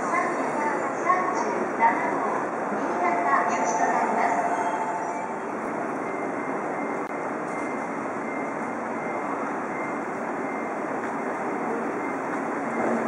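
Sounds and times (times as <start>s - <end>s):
train humming at platform: 0.0s - 13.0s
faint high tone: 3.0s - 6.2s.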